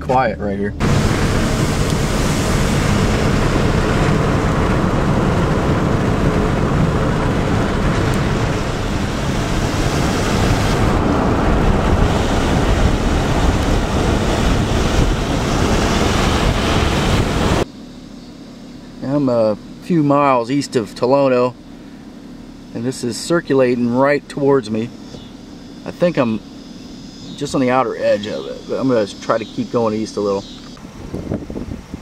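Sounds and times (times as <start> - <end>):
gusty wind buffeting microphone: 0.7 - 17.6, 30.8 - 32.0.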